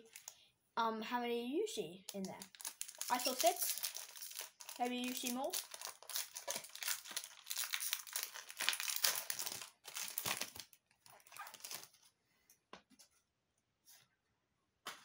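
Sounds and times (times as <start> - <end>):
foil wrapper crinkling: 2.1 - 12.0.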